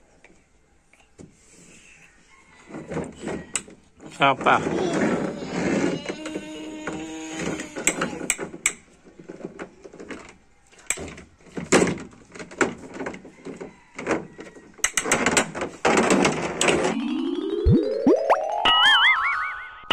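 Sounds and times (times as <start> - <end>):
plastic toys clattering: 2.6 - 17.0.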